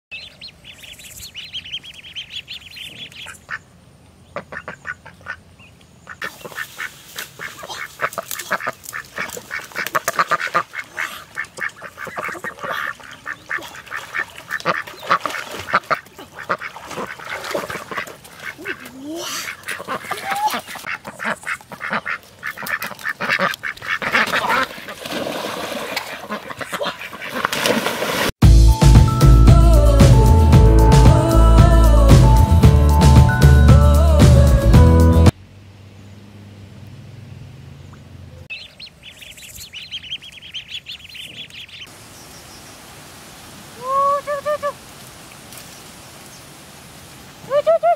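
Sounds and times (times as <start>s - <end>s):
ducks quacking: 4.3s - 25.1s, 26.0s - 27.6s.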